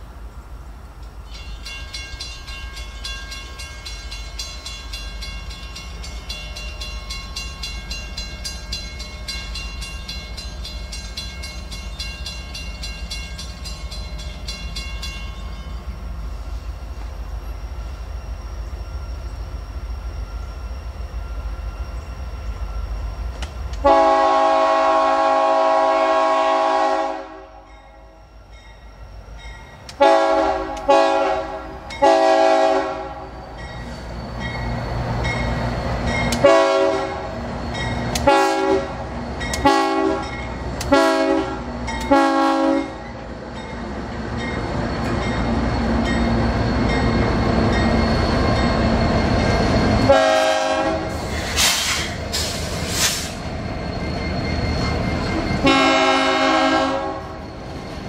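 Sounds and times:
locomotive air horn blasts: 23.8s - 27.7s, 30.0s - 33.3s, 36.4s - 37.3s, 38.2s - 38.9s, 39.6s - 40.3s, 40.9s - 43.0s, 50.1s - 51.2s, 55.6s - 57.4s.

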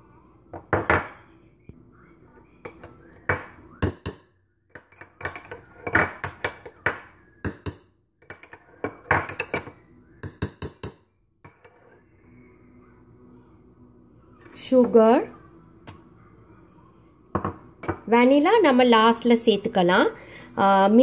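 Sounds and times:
metal spoon clinking on steel jar: 4.7s - 6.8s, 7.5s - 9.7s.

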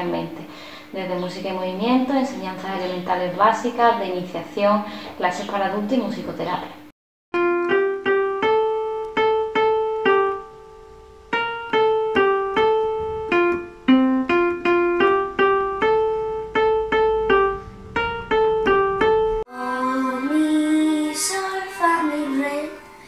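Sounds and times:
electronic keyboard melody: 7.4s - 20.5s
child singing: 19.5s - 23.0s.

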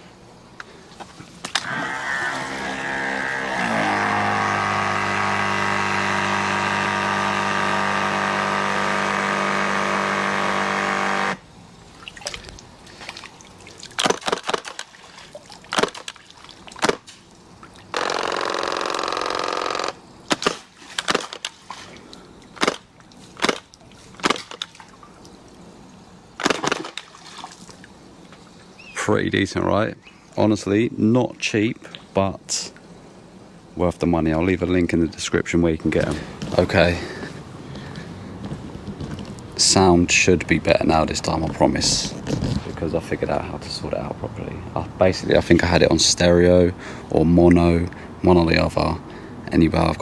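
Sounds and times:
water blasts slapping pool surface: 0.9s - 25.6s, 26.4s - 28.5s
electric water gun pump: 1.4s - 11.5s, 17.9s - 21.5s.

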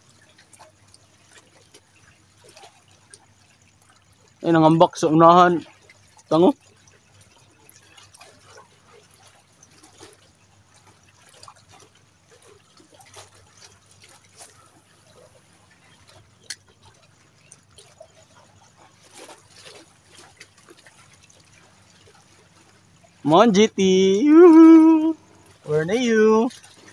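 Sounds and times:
small waves lapping: 0.0s - 26.9s.

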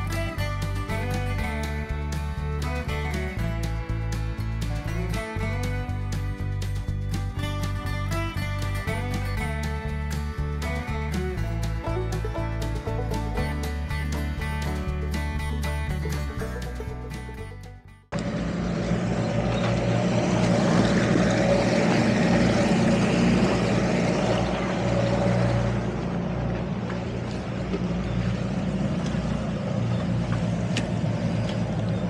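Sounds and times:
music: 0.0s - 18.1s
outboard motors running: 0.0s - 32.0s
wind and water rushing: 19.8s - 31.8s.

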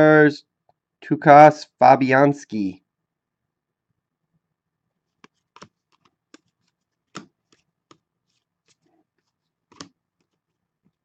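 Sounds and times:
trading cards flipped through: 5.2s - 10.4s.

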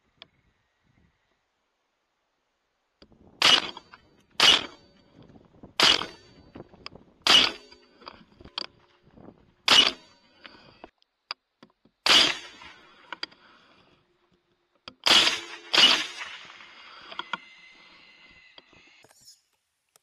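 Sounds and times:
rifle shots: 3.4s - 4.8s, 5.8s - 6.4s, 7.2s - 7.7s, 9.7s - 10.0s, 12.0s - 13.0s, 15.0s - 17.1s
faint small clicks: 18.4s - 20.0s.

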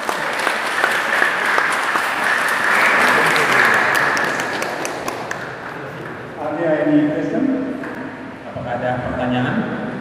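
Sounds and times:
audience applauding: 0.0s - 6.4s.

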